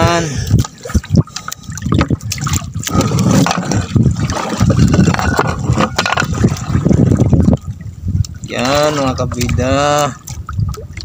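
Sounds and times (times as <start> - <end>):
seawater splashing: 0.0 - 11.0
knocks and scrapes: 2.9 - 7.1.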